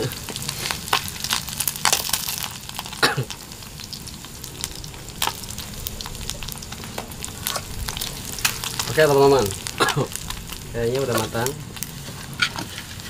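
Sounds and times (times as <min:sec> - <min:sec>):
fish sizzling in hot oil: 0:00.0 - 0:13.0
oil crackling and popping: 0:00.0 - 0:13.0
wooden stick scraping pan: 0:12.0 - 0:13.0.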